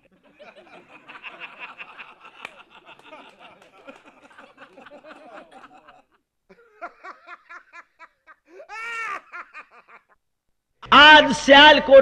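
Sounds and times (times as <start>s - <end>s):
men laughing and chuckling: 0.0s - 10.2s.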